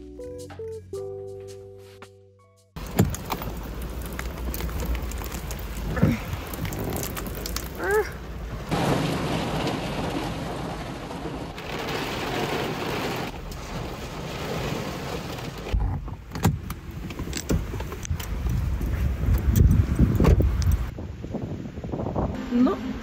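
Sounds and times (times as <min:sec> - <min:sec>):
rain hissing: 0:02.8 - 0:15.8
road noise: 0:02.8 - 0:23.0.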